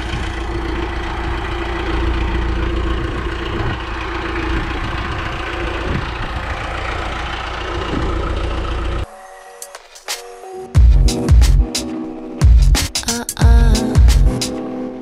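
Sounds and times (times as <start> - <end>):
tractor engine idling: 0.0 - 9.1.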